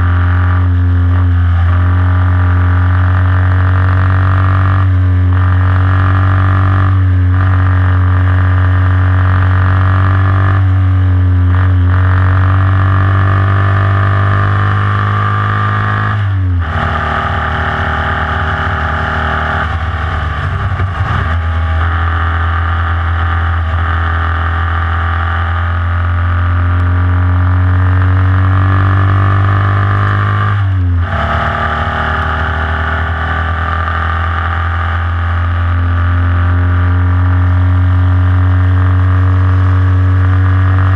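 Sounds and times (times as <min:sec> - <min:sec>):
car engine at high revs: 0:00.0 - 0:40.9.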